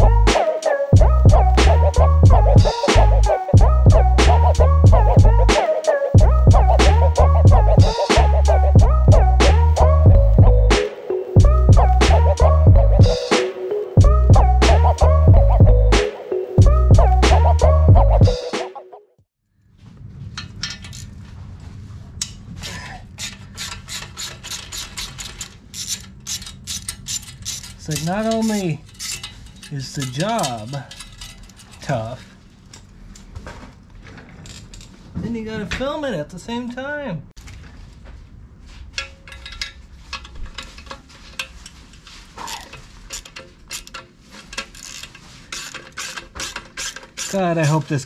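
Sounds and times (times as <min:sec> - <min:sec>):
steady low hum: 0:01.0 - 0:05.6, 0:06.2 - 0:10.8
ratchet wrench clicking: 0:23.2 - 0:31.7, 0:42.5 - 0:48.0
socket ratchet clicking: 0:42.6 - 0:47.4.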